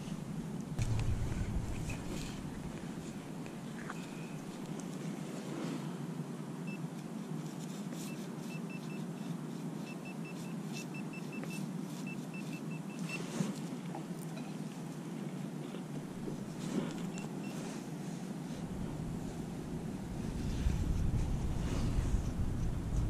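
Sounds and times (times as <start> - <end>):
steady low rumble: 0.0 - 4.8, 18.5 - 23.0.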